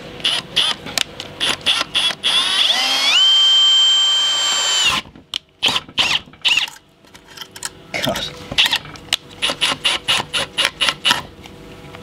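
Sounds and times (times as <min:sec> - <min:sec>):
power drill whining: 0:01.4 - 0:06.8.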